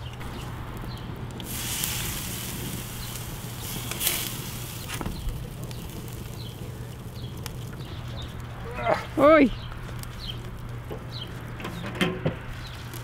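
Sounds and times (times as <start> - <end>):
hissing spray: 1.4 - 7.8.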